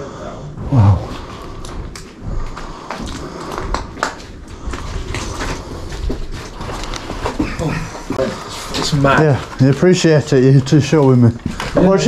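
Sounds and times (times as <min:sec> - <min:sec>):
low rumble: 0:00.5 - 0:02.5.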